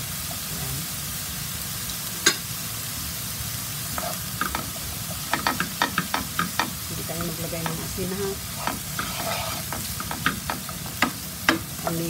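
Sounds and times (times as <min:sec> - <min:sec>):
vegetables sizzling in oil: 0:00.0 - 0:12.0
wooden spoon scraping a pan: 0:03.9 - 0:11.6.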